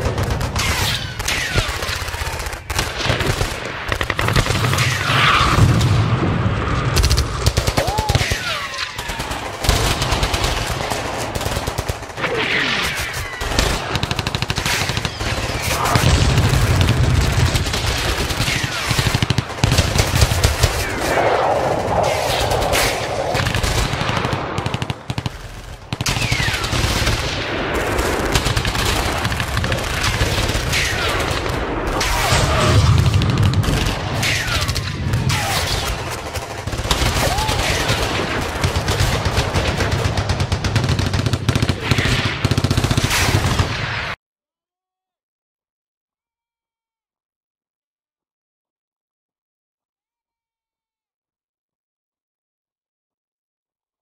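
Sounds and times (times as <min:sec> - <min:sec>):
airsoft rifles firing: 0:00.0 - 0:05.6, 0:07.0 - 0:21.2, 0:22.8 - 0:44.2
low rumble: 0:21.0 - 0:25.1.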